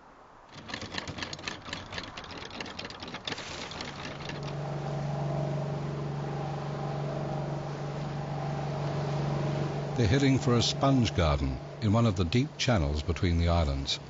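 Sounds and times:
rapid crackling clicks: 0.5s - 4.6s
boat engine running: 0.5s - 14.0s.

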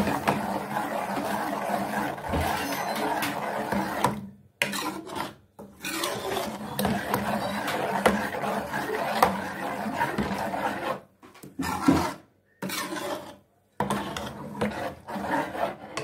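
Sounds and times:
metal ladle scraping a pot: 0.0s - 16.0s.

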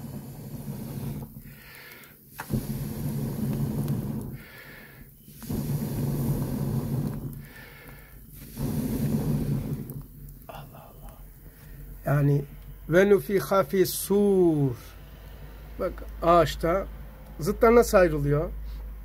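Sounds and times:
man blowing on embers: 0.0s - 12.9s
quick in-breath: 1.4s - 2.6s, 4.3s - 5.1s, 7.4s - 9.6s.

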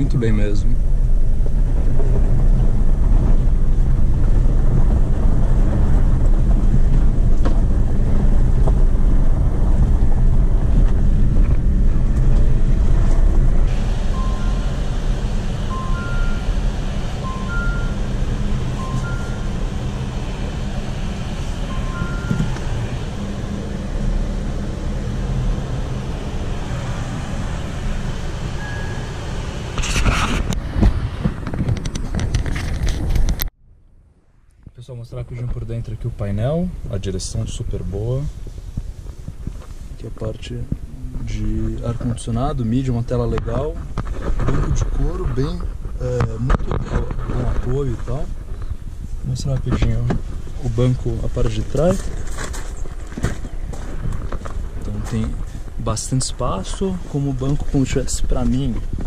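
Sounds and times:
engine and tyres rumbling: 0.0s - 59.0s
two-tone electronic warning chime: 14.0s - 20.1s, 21.6s - 23.3s, 28.6s - 29.3s.

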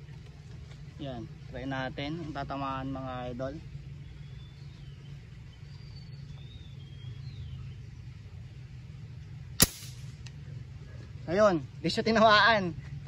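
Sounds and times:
steady low rumble: 0.0s - 13.0s
faint bird chirps: 3.7s - 8.5s.

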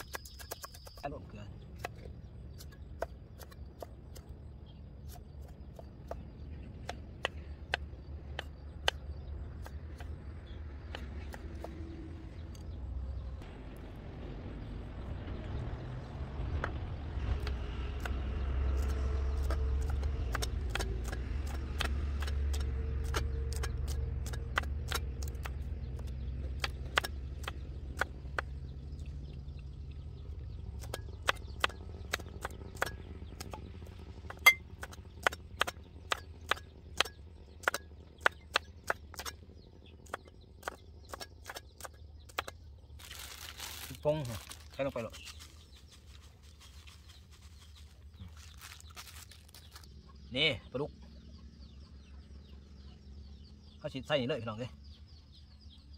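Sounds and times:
low engine rumble: 0.0s - 55.9s
knife chopping on wooden block: 19.4s - 28.5s.

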